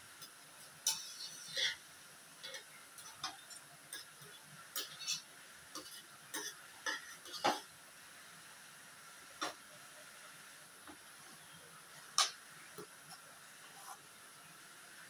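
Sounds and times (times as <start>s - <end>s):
metal ladle scraping a frying pan: 0.8s - 1.8s, 2.4s - 7.7s.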